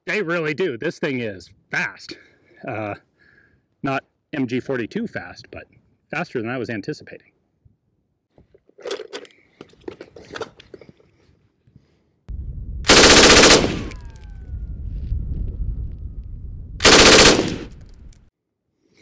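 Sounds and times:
machine gun bursts: 12.9s - 14.0s, 16.8s - 17.9s.

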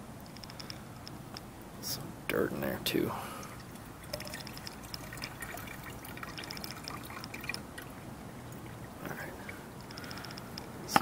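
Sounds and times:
liquid trickling into plastic jug: 3.4s - 10.0s.

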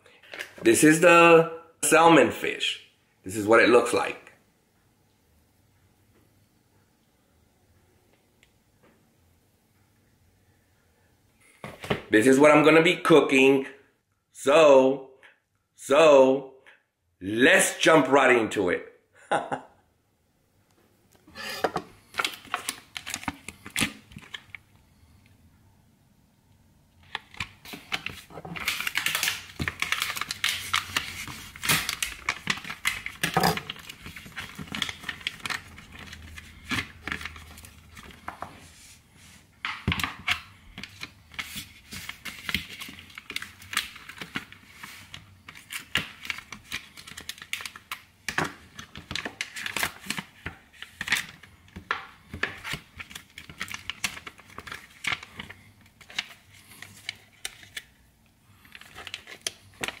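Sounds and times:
packaging tearing and crinkling: 27.4s - 37.8s.

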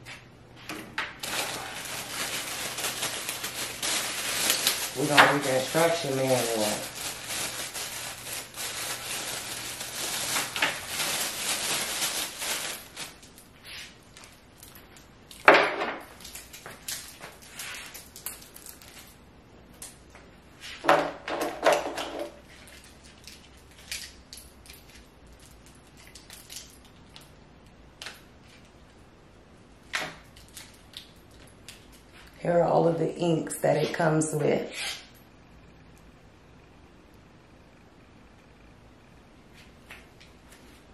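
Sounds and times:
plastic packaging crinkling: 1.2s - 19.2s, 21.8s - 28.9s, 30.1s - 32.4s.

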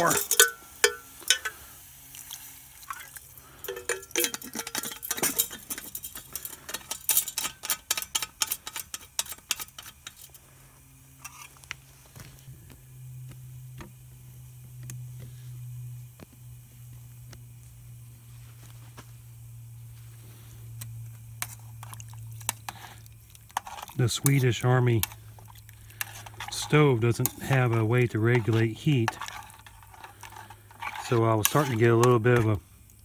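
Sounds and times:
low hum of boiling: 0.0s - 33.0s
broth crackling and popping: 11.2s - 33.0s.

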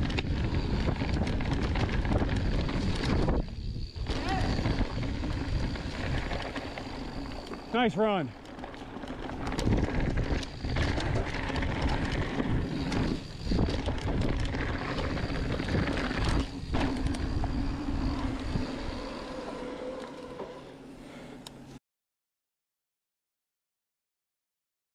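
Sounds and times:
wind rumble on microphone: 0.0s - 7.7s, 9.1s - 19.1s.

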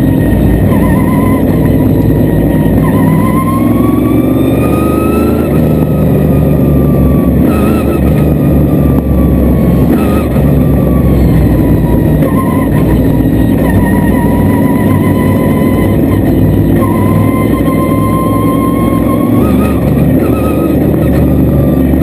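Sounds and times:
race car engine revving: 0.0s - 22.0s.

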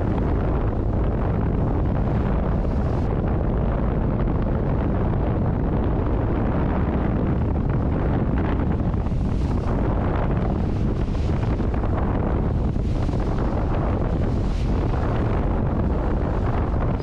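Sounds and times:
hull rushing through choppy water: 0.0s - 17.0s
wind buffeting microphone: 0.0s - 17.0s.

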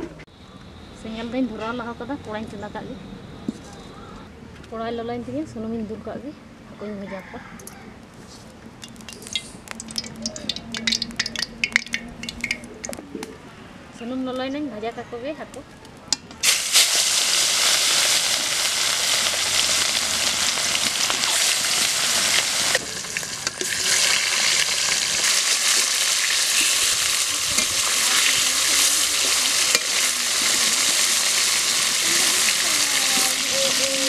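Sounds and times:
fish sizzling in hot oil: 8.9s - 12.5s, 16.4s - 34.0s.

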